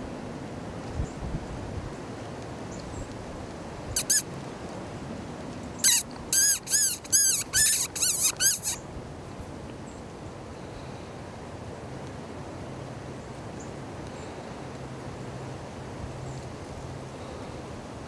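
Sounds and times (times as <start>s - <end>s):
predator call squeaks: 4.0s - 4.3s, 5.8s - 8.8s.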